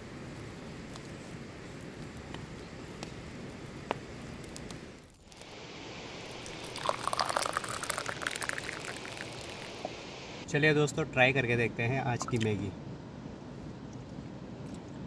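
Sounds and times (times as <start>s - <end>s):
low steady hiss: 0.0s - 15.0s
wood fire crackling: 0.8s - 10.4s
tea pouring into a cup: 5.2s - 10.0s.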